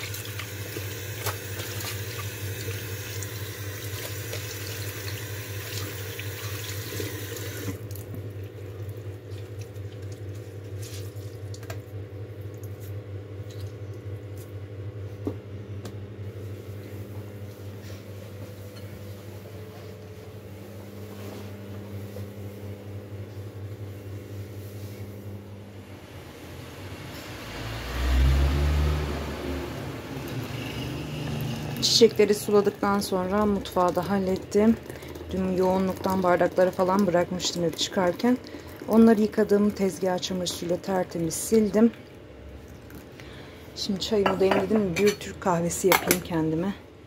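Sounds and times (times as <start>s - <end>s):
tap water running into sink: 0.0s - 8.2s, 31.2s - 39.9s.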